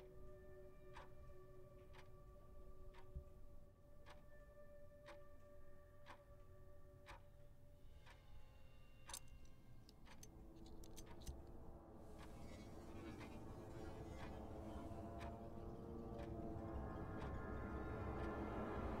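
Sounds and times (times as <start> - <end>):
clock-like ticking: 0.0 - 2.2, 4.0 - 7.4, 9.0 - 11.6, 12.2 - 19.0
drone of held notes: 11.5 - 19.0.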